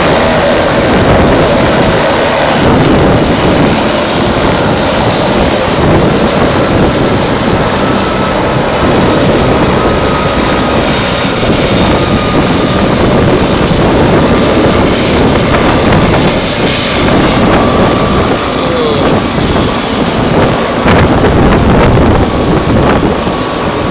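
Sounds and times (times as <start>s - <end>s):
helicopter engine and rotor running: 0.0s - 23.9s
wind buffeting microphone: 0.0s - 23.9s.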